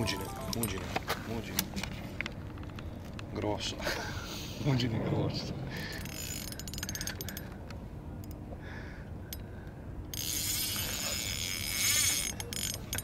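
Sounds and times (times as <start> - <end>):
fishing reel clicks: 10.1 - 13.0
fishing reel whirring: 10.1 - 13.0.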